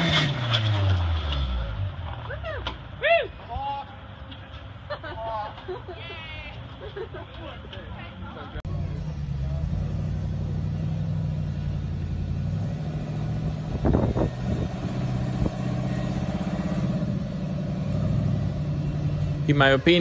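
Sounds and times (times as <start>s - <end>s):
engine drone under load: 8.5s - 20.0s.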